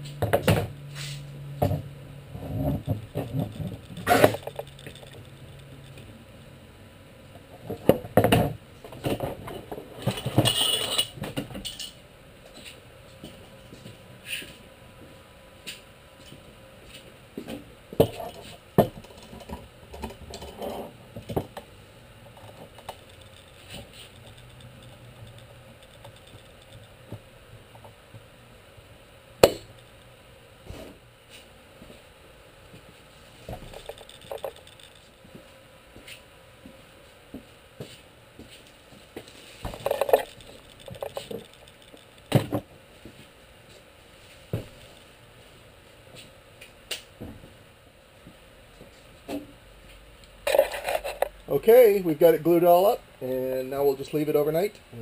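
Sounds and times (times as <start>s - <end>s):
steady low hum: 0.0s - 55.0s
knocks and metallic clinks: 1.6s - 6.1s, 7.8s - 12.0s, 22.3s - 27.2s, 29.4s - 30.1s, 33.4s - 35.3s, 39.7s - 42.7s.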